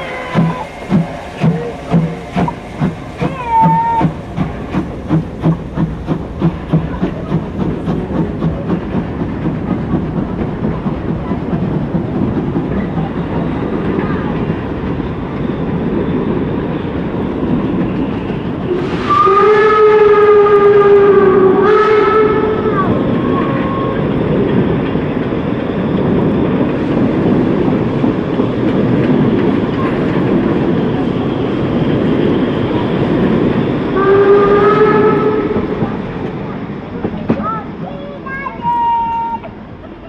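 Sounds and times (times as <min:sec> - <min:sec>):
steam locomotive whistle: 0:00.0 - 0:02.5, 0:03.2 - 0:04.2, 0:18.7 - 0:24.1, 0:33.9 - 0:35.8
train carriages rumbling past: 0:00.0 - 0:40.0.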